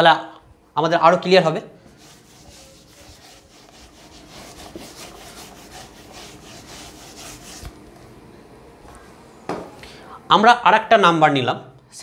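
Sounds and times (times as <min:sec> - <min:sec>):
eraser scrubbing a whiteboard: 0:01.9 - 0:07.8.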